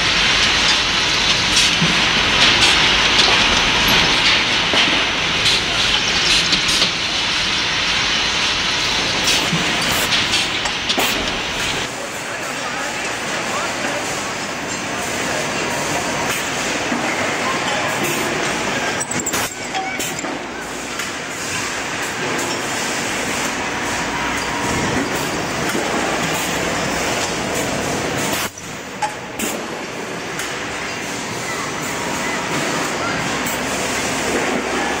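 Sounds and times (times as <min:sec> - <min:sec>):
tapping machine running: 0:00.0 - 0:11.9, 0:16.2 - 0:21.2.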